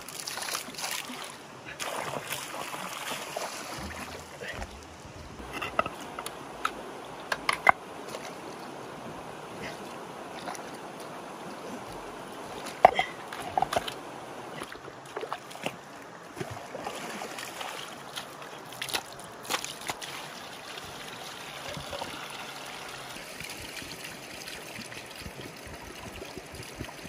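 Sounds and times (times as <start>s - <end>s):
shallow water sloshing: 0.0s - 27.0s
steady hiss of water: 0.0s - 27.0s
rocks knocking: 3.8s - 7.8s.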